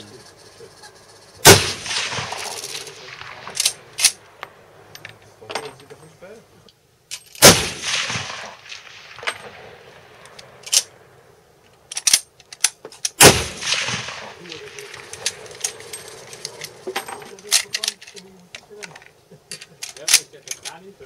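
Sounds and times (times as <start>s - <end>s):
sharp metallic clicks: 1.1s - 5.2s, 11.7s - 20.8s
loud rifle shots: 1.4s - 4.9s, 7.4s - 11.2s, 13.2s - 16.8s.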